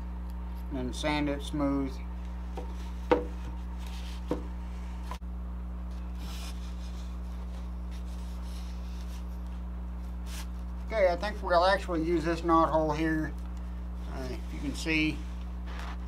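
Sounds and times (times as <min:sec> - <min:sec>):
steady low hum: 0:00.0 - 0:16.0
wooden plank knocked on table: 0:02.6 - 0:03.4
hands rubbing over wood: 0:02.6 - 0:05.2, 0:06.2 - 0:11.0, 0:14.1 - 0:16.0.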